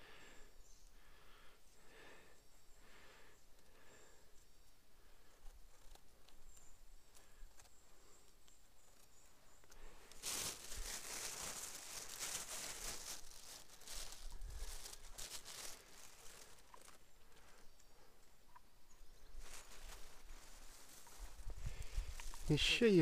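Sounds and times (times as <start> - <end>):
plastic bag rustling: 9.8 - 17.3, 19.3 - 23.0.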